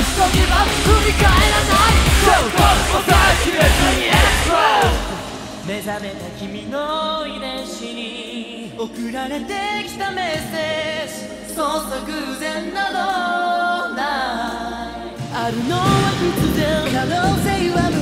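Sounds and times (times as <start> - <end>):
bass and beat: 0.0 - 5.9, 15.2 - 18.0
male group singing pop song: 0.0 - 18.0.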